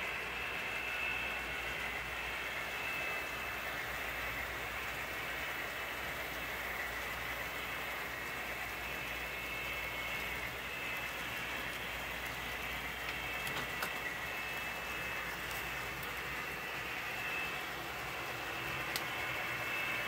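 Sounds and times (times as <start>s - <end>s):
faint high whine: 0.0s - 20.0s
model train motors whirring: 0.0s - 20.0s.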